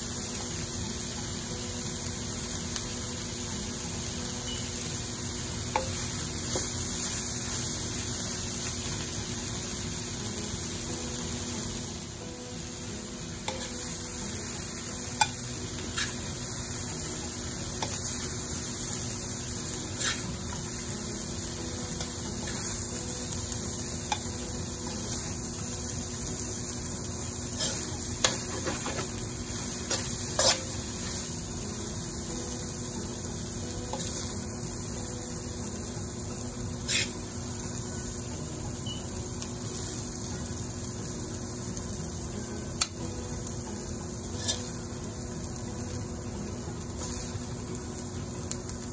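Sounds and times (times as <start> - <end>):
vegetables sizzling in a wok: 0.0 - 48.9
spatula scraping a wok: 15.2 - 16.4, 19.8 - 20.4, 27.4 - 31.2, 36.8 - 37.3, 44.3 - 44.8.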